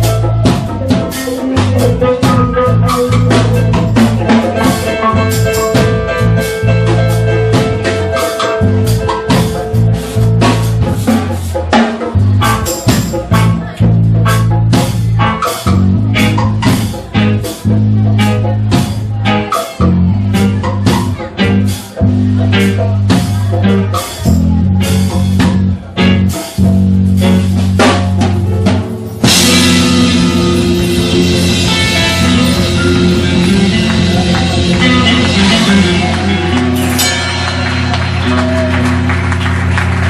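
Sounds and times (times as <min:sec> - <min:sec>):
deep bass line: 0:00.0 - 0:40.0
drum kit beat: 0:00.0 - 0:40.0
dub band playing: 0:00.0 - 0:40.0
cymbals washing: 0:29.0 - 0:39.4.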